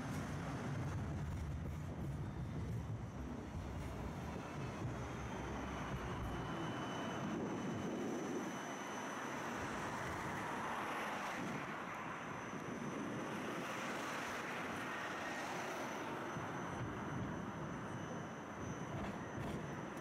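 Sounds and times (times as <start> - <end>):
tram rumble and hiss: 0.0 - 8.2.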